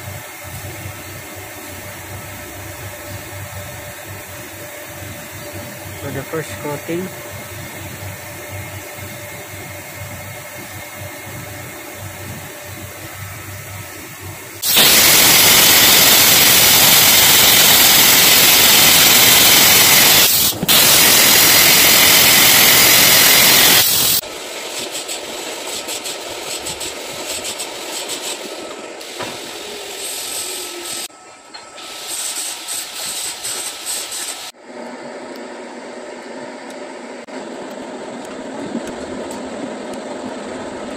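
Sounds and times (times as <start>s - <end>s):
machining sounds: 1.4s - 8.0s
metal spray gun hissing: 12.3s - 24.2s, 24.8s - 31.1s, 31.8s - 34.5s.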